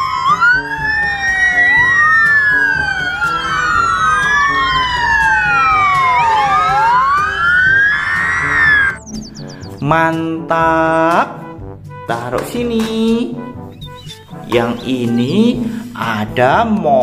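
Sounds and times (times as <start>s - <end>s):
fire engine sirens wailing: 0.0s - 9.0s.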